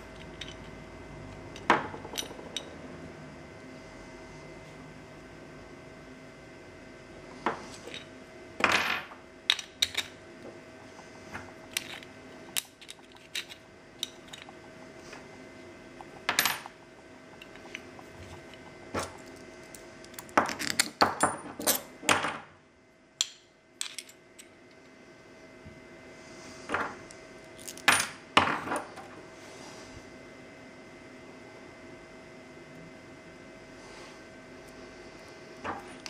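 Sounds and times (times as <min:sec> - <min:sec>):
metal parts clinking and scraping: 0:00.1 - 0:00.7, 0:11.6 - 0:14.6, 0:20.1 - 0:21.0, 0:23.8 - 0:24.2.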